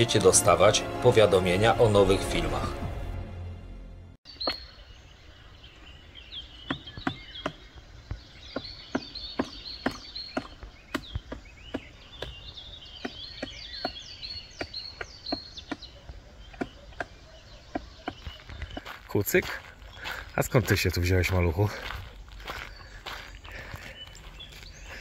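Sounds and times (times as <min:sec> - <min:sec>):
high bird chirps: 0:04.3 - 0:25.0
woodpecker pecking on tree: 0:06.6 - 0:18.9.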